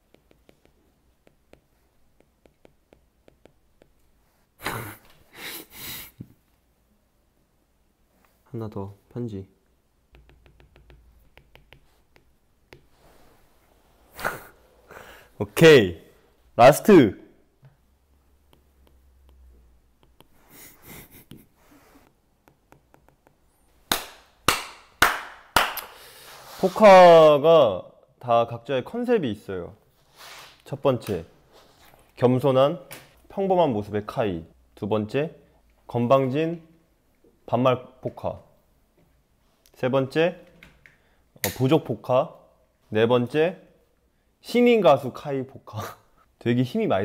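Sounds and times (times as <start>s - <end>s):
breathy sniff: 4.3s - 6.2s, 12.9s - 15.4s, 20.3s - 22.1s, 25.9s - 26.8s, 30.0s - 30.6s
stifled laugh with nasal snorts: 4.6s - 6.2s, 20.5s - 22.0s
stylus tapping on glass screen: 10.1s - 12.9s
hand clap: 22.5s - 26.0s.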